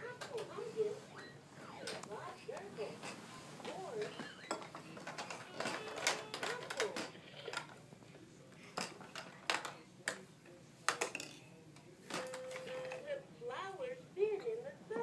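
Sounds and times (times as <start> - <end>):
plastic toy buttons clacking: 5.0 - 7.7.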